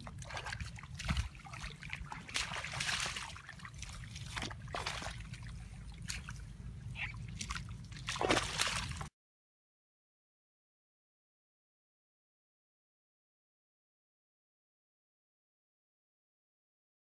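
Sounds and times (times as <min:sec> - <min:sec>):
low steady rumble: 0:00.0 - 0:09.1
muddy water splashing: 0:00.0 - 0:09.1.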